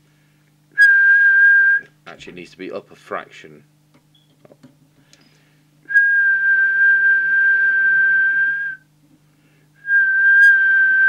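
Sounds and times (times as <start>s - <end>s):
steady whistle: 0.8s - 1.9s, 5.9s - 8.8s, 9.8s - 11.0s.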